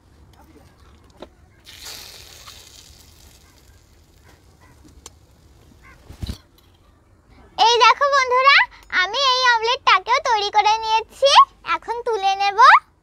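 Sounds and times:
omelette sizzling: 1.7s - 6.0s.

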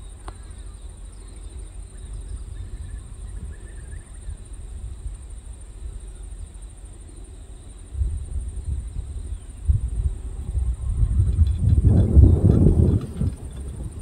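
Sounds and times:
faint bird chirps: 0.0s - 4.6s
pulsing insect trill: 0.0s - 14.0s
low rumble: 8.0s - 14.0s.

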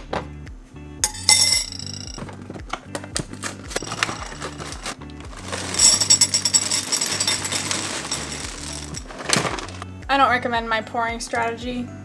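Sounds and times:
background music with bass line: 0.0s - 12.0s
plastic bag rustling: 3.8s - 9.8s
cereal pouring into a bowl: 5.3s - 9.8s.

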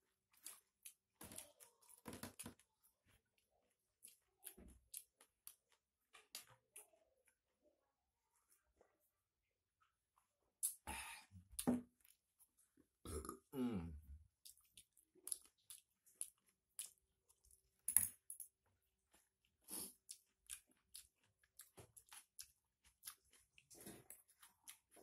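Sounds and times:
person chewing with wet smacks: 0.1s - 7.4s, 10.6s - 13.4s, 14.2s - 25.0s
low belch: 13.0s - 14.0s.

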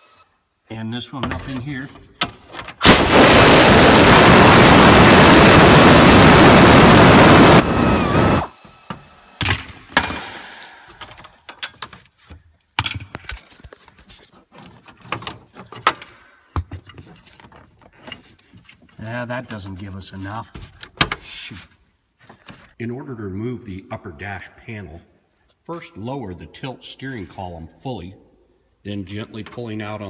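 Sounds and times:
impact tool running: 2.8s - 8.6s
clicks and knocks of handling: 10.9s - 19.0s.

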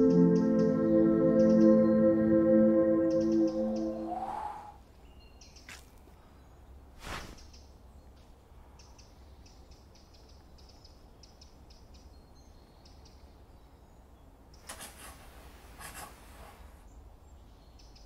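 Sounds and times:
scratchy rubbing noises: 14.7s - 16.8s.

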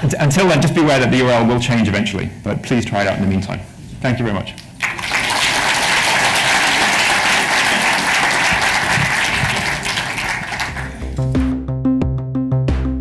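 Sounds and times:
audience applauding: 4.8s - 11.2s.

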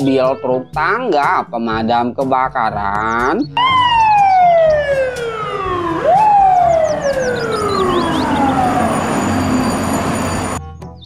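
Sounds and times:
fire engine siren wailing: 3.6s - 10.6s.

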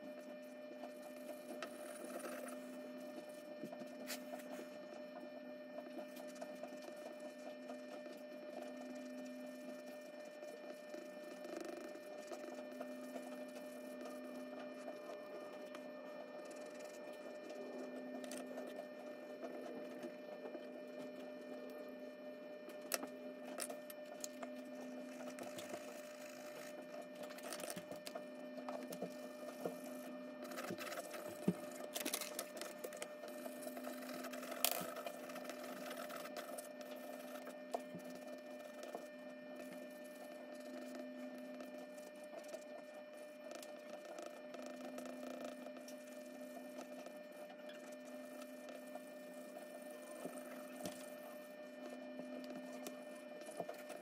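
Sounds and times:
steady low hum: 0.0s - 54.0s
pencil scratching on paper: 0.2s - 21.5s, 29.0s - 46.2s.

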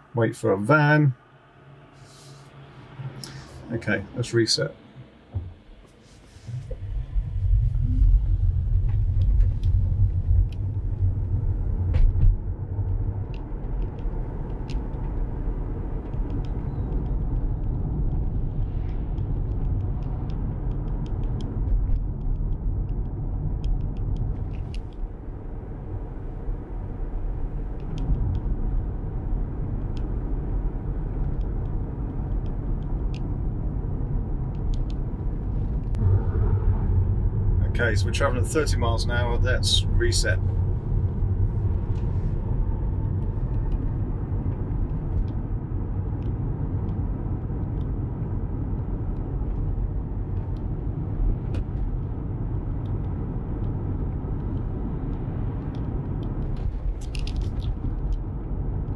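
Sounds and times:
road and tyre rumble in car: 0.0s - 58.9s.

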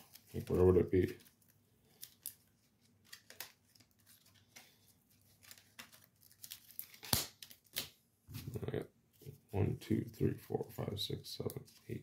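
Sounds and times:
trading cards shuffling: 0.0s - 8.6s.

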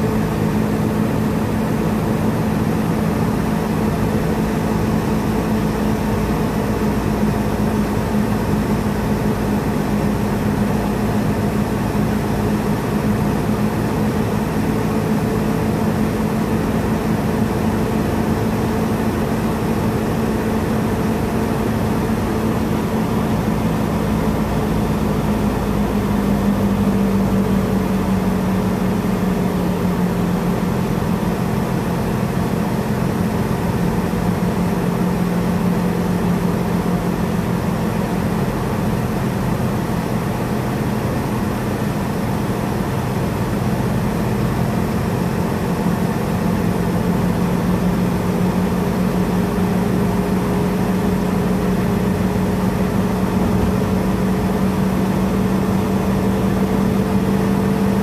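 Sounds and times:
car engine hum: 0.0s - 58.0s.

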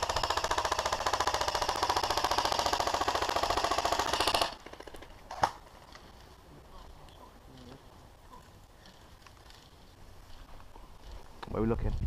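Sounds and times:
airsoft gun full-auto burst: 0.0s - 5.0s.

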